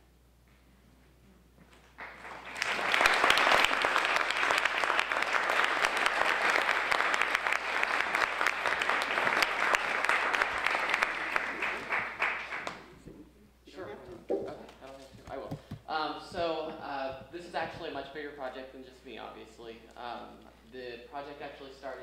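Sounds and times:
audience applauding: 1.8 - 13.0.

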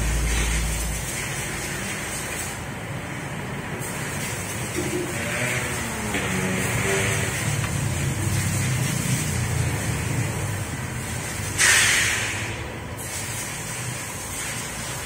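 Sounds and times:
low workshop rumble: 0.0 - 15.0
burst of hissing air: 6.3 - 15.0.

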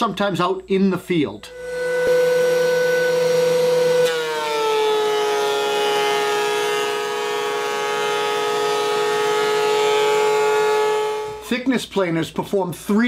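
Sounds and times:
thickness planer whining: 1.5 - 11.5.

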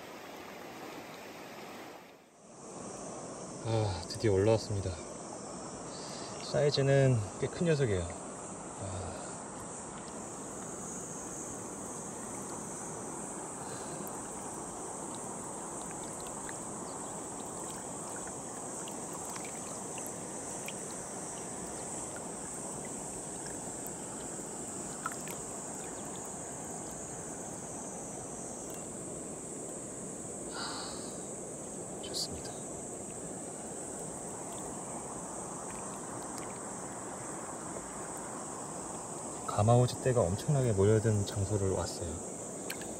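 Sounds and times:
stream water rushing: 0.0 - 2.3, 9.8 - 42.9
high-pitched insect drone: 2.8 - 42.9
faint ticks: 9.5 - 27.6, 28.6 - 29.0, 35.5 - 36.9, 42.6 - 42.9.

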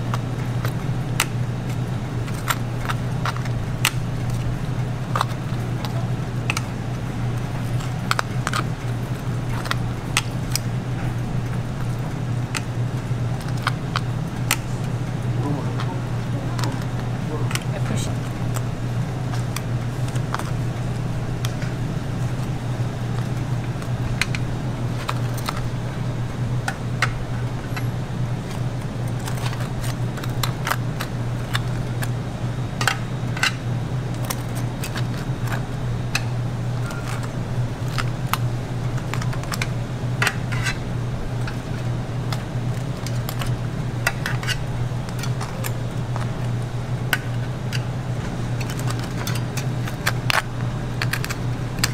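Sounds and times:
kitchen machinery hum: 0.0 - 51.9
utensils tapping on wire rack: 32.8 - 33.6, 34.2 - 51.9.

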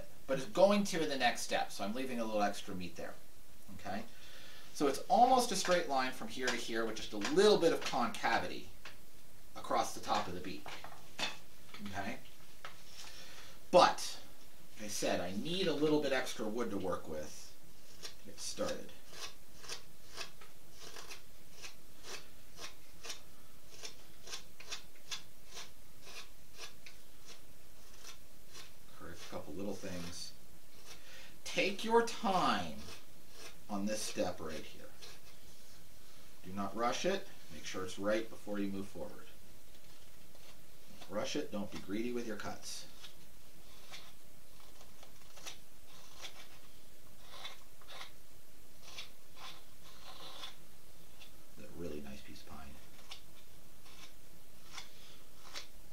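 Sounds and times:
knife scraping wood: 4.8 - 8.6, 9.6 - 12.0, 14.8 - 35.8, 39.8 - 48.2, 48.8 - 51.4, 52.4 - 55.8.

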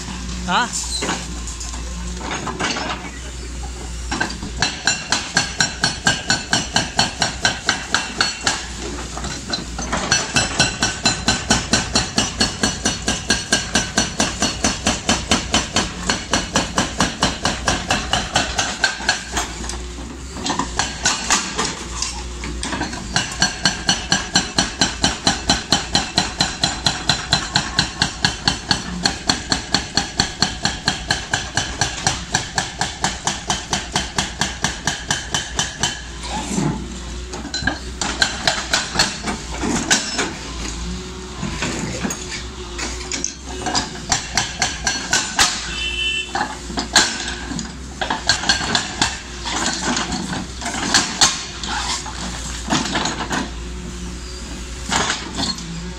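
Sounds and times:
hydraulic breaker hammering concrete: 4.1 - 19.7, 20.4 - 21.8, 22.6 - 36.4, 37.4 - 40.4, 43.2 - 53.6.

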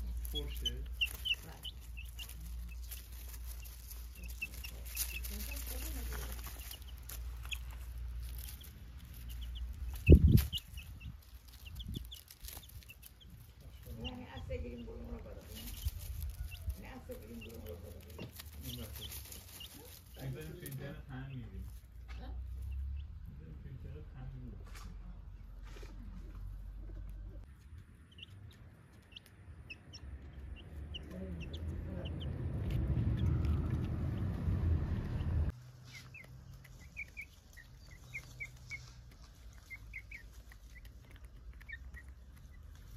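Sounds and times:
chicks peeping: 0.0 - 42.9
low rumble: 29.5 - 35.6.

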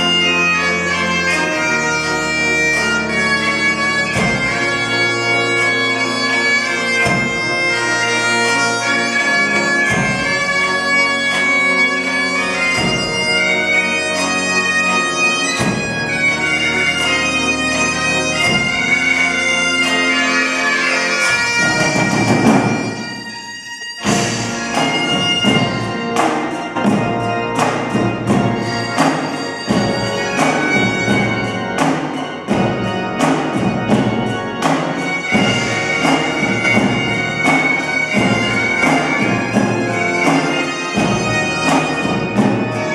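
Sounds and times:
bagpipes playing: 0.0 - 42.9
snare drum beating: 12.7 - 13.3, 24.0 - 42.9
drum roll: 24.0 - 42.9.

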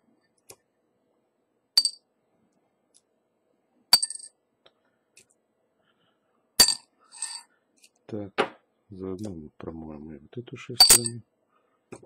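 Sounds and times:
metal parts clinking on glass jar: 6.6 - 7.4, 10.8 - 11.2.

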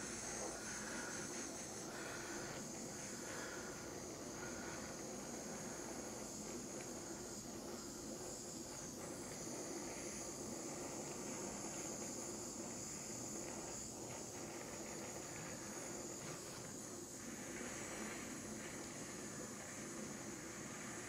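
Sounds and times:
torch flame hissing: 0.0 - 21.0.

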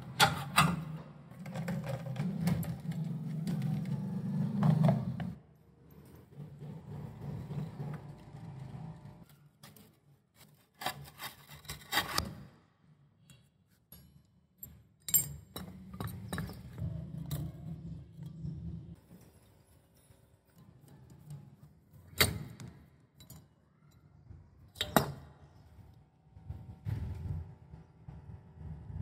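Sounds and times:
low hum: 26.3 - 29.0.

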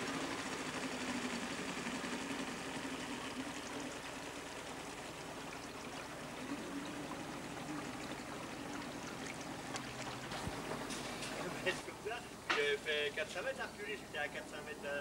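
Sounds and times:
floodwater swishing and lapping: 0.0 - 11.9.

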